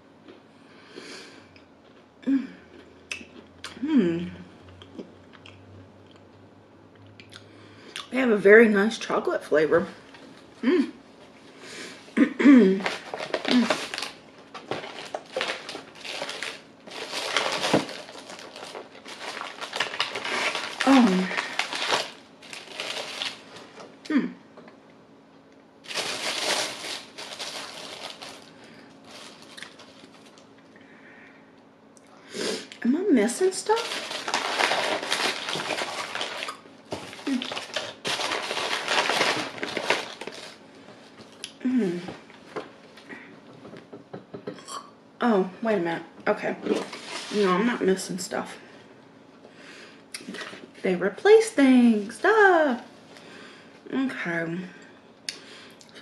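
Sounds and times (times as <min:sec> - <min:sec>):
plastic wrappers crinkling: 0:12.8 - 0:23.8, 0:25.8 - 0:30.5, 0:33.3 - 0:40.6, 0:46.6 - 0:47.8.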